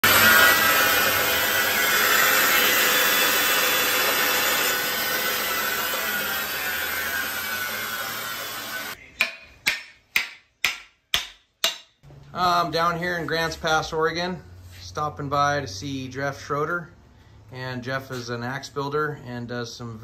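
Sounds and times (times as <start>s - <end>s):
bandsaw winding down: 0.0s - 9.0s.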